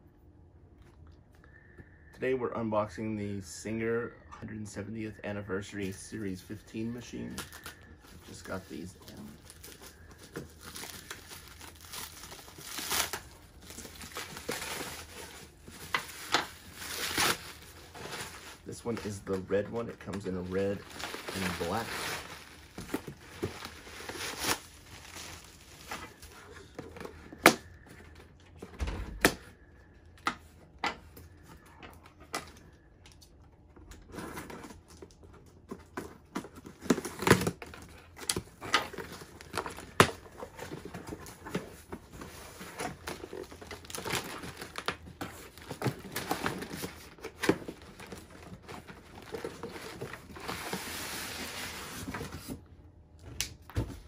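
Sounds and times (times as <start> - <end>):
plastic wrap crinkling: 7.2 - 27.8, 36.8 - 52.2.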